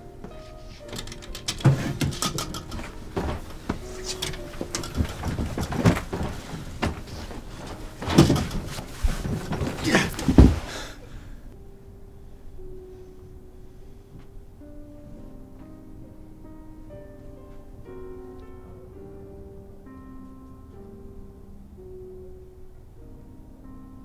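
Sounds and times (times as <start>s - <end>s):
clothes rustling: 0.2s - 11.2s
knocks and clicks: 0.9s - 10.6s
dresser drawer handled: 0.9s - 10.8s
heavy thump: 1.6s - 11.0s.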